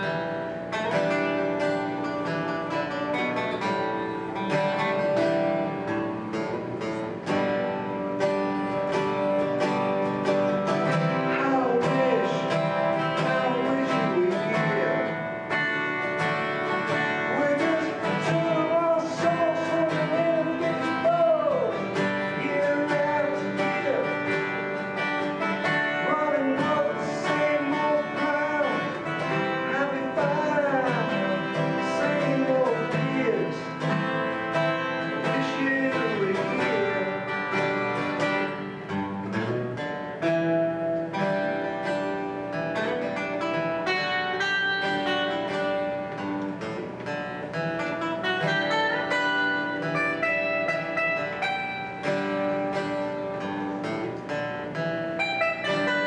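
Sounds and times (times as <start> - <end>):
acoustic guitars playing: 0.0 - 56.0
man singing: 10.5 - 15.6, 16.8 - 38.6.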